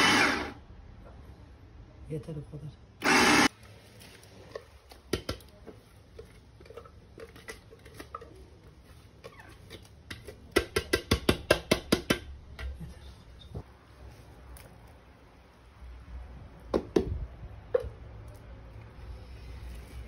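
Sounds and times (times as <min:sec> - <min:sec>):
electric food chopper running: 0:00.0 - 0:00.6, 0:03.0 - 0:03.5.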